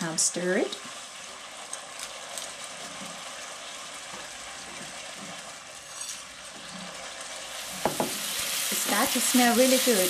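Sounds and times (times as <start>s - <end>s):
liquid sizzling in frying pan: 0.0s - 10.0s.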